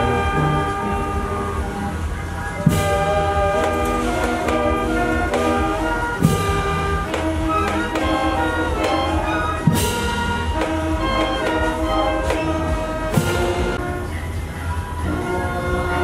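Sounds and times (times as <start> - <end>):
brass band playing held chords: 0.0 - 16.0
loud cymbal crash: 2.7 - 13.8.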